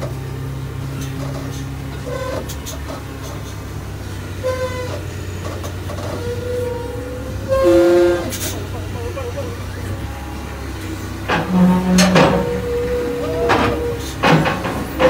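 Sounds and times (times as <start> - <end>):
forklift engine running: 0.0 - 15.0
short pitched horn toots: 4.4 - 5.0, 6.1 - 8.7, 11.3 - 14.2.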